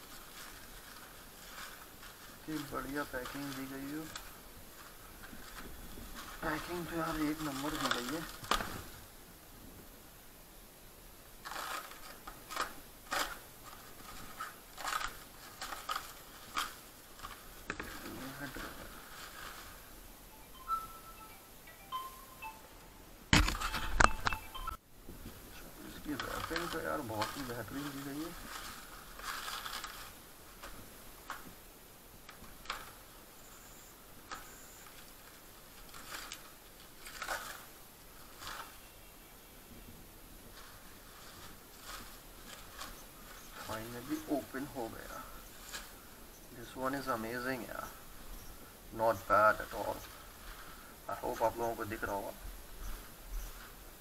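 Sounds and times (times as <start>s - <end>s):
bubble wrap crinkling: 0.0s - 9.0s, 11.4s - 20.1s, 25.4s - 33.2s, 34.2s - 39.0s, 40.4s - 46.3s.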